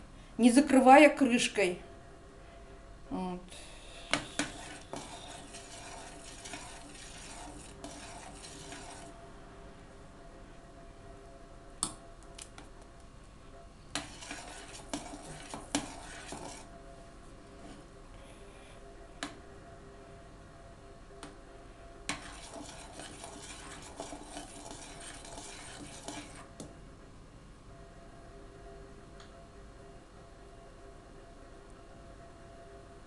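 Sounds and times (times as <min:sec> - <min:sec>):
ladle scraping metal pot: 0:04.1 - 0:09.2, 0:14.0 - 0:16.7, 0:22.1 - 0:26.5.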